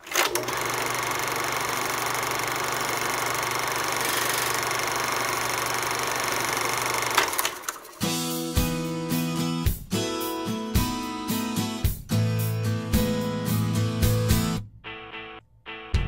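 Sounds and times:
movie projector whirring clatter: 0.0s - 8.1s
projector clicks: 4.0s - 8.0s.

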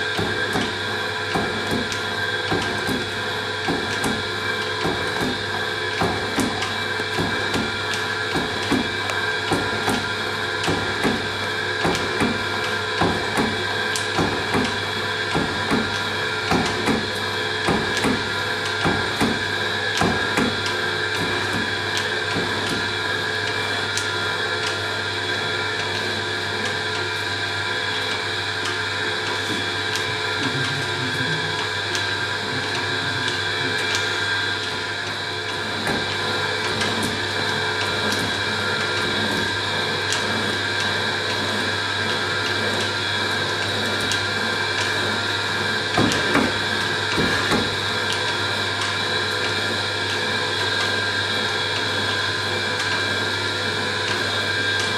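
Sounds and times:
machine humming: 0.0s - 54.9s.

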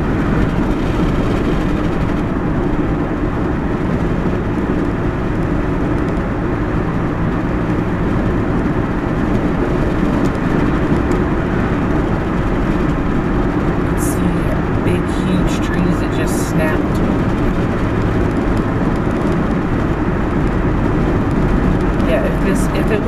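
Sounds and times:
car road and engine noise: 0.0s - 23.0s.

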